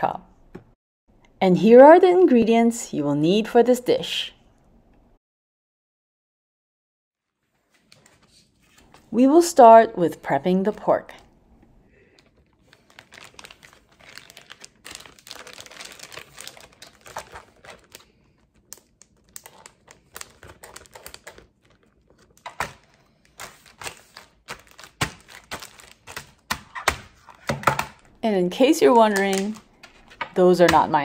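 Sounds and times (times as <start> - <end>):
plastic bag crinkling: 12.0 - 26.5.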